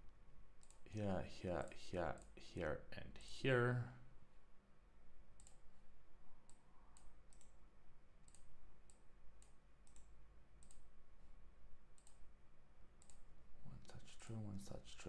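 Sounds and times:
computer mouse clicking: 0.6s - 0.8s, 5.4s - 5.6s, 6.4s - 7.6s, 8.2s - 10.9s, 11.9s - 12.2s, 13.0s - 13.3s.

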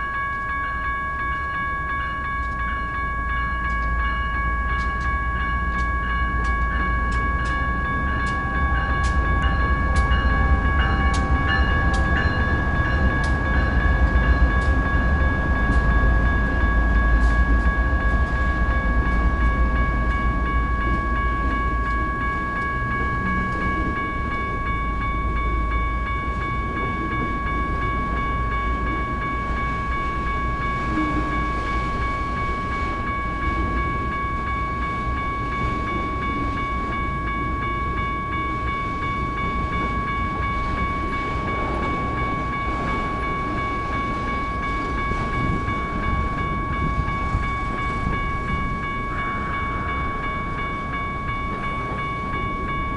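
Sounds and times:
diesel locomotive rumble: 0.0s - 52.9s
electronic crossing bells ringing: 0.0s - 52.9s.

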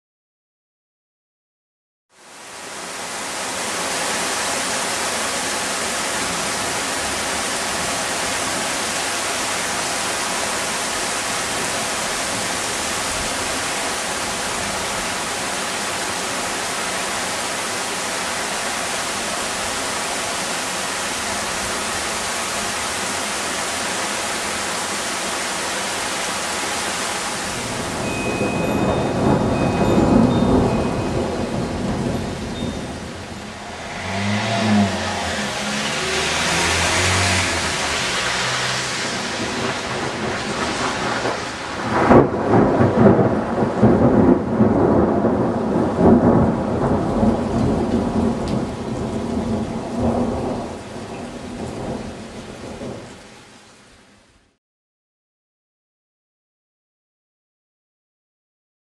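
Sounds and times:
heavy rain downpour: 2.1s - 54.6s
low rumble of thunder: 27.6s - 36.5s, 39.1s - 53.1s.

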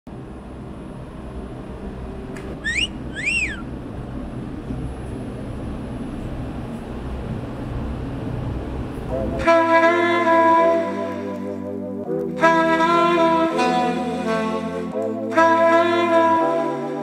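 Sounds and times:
low background rumble: 0.1s - 10.5s
two-note wolf whistle: 2.6s - 3.7s.

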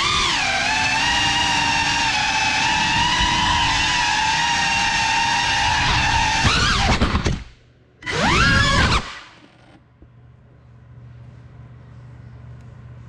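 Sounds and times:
drone motors whining: 0.0s - 9.8s.

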